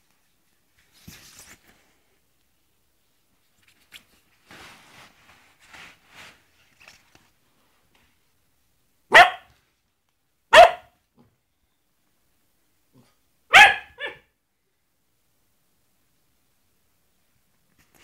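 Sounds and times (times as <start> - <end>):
dog barking: 9.1 - 9.6, 10.5 - 11.0, 13.5 - 14.3.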